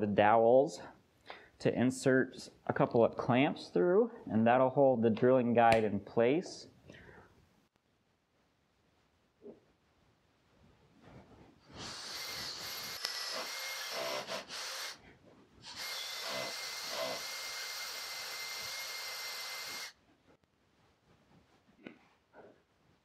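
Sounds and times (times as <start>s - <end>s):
cordless drill boring wood: 11.7s - 15.0s, 15.6s - 20.0s.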